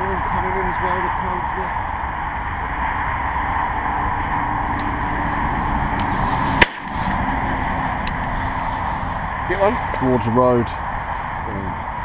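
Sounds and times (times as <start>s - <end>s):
steady background noise: 0.0s - 12.0s
shotgun shot: 6.6s - 7.0s.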